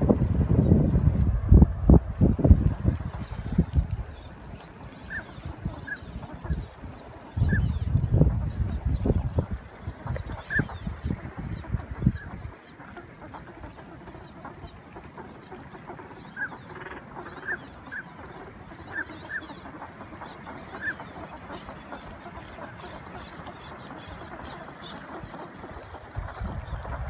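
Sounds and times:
ducks whistling calls: 0:02.8 - 0:27.0.

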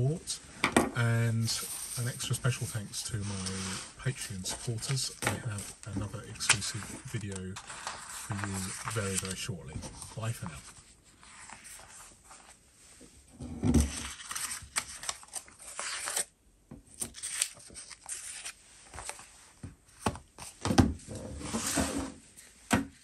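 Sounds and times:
paper rustling and sliding: 0:01.4 - 0:12.6, 0:13.8 - 0:16.3, 0:17.0 - 0:20.6, 0:21.3 - 0:22.5.

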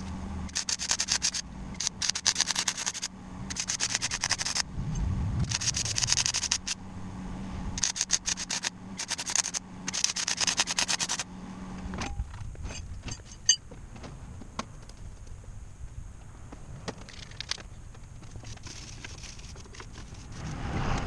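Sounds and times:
steady hum: 0:00.0 - 0:14.2
metal clinks and knocks: 0:12.0 - 0:13.7.

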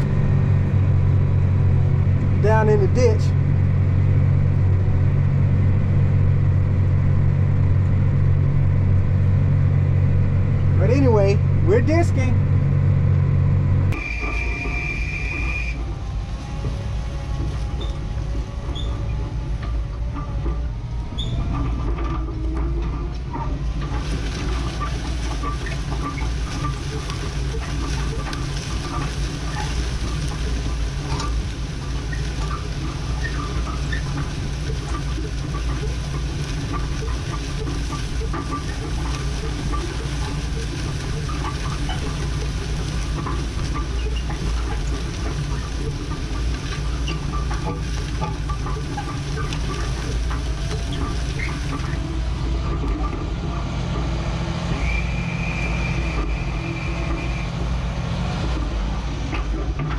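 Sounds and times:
rattles and clicks: 0:00.0 - 0:59.9
tractor engine running: 0:00.0 - 0:59.9
hissing clattering noise: 0:13.9 - 0:59.9.

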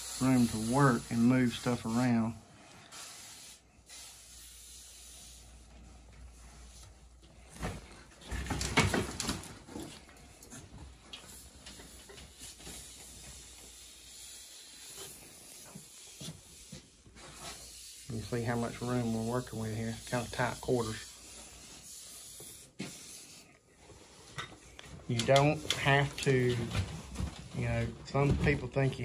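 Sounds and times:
sprayer hissing: 0:00.0 - 0:02.1
rustling and knocking: 0:07.4 - 0:12.9.

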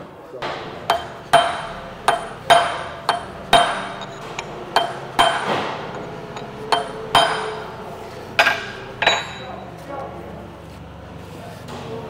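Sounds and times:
hammer striking steel chisel: 0:00.4 - 0:09.7.

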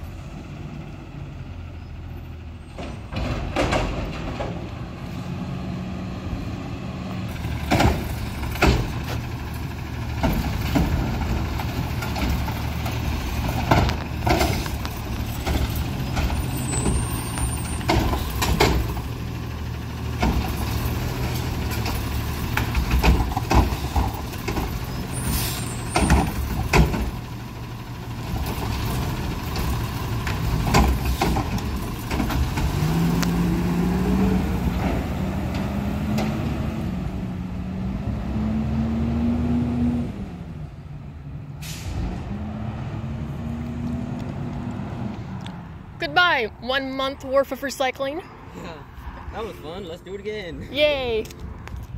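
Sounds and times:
diesel engine running: 0:00.0 - 0:51.9
carts clanking and banging: 0:02.6 - 0:05.0, 0:07.3 - 0:33.1
short air hisses: 0:25.2 - 0:25.8, 0:41.6 - 0:42.0.

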